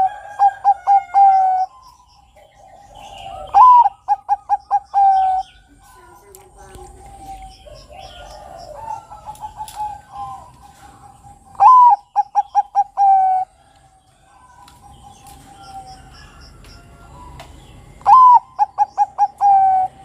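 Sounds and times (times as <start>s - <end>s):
dove singing: 0.0s - 20.0s
small birds chirping: 0.0s - 20.0s
faint dove coos: 2.8s - 13.5s.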